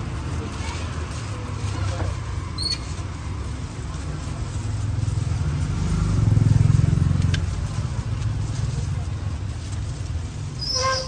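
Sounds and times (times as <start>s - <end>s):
passing vehicle engine rumble: 0.0s - 11.0s.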